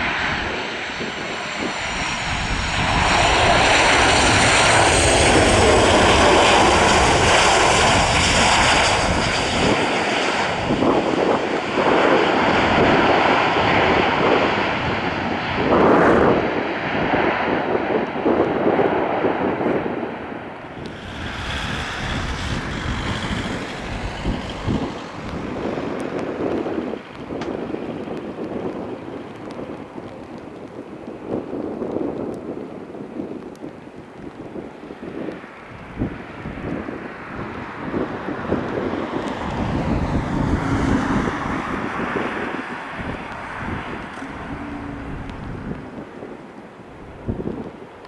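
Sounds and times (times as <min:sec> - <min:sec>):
jet engines running: 0:00.0 - 0:48.0
turboprop plane droning: 0:00.0 - 0:48.0
wind rumbling on microphone: 0:00.0 - 0:48.0
faint high whine: 0:42.8 - 0:46.7.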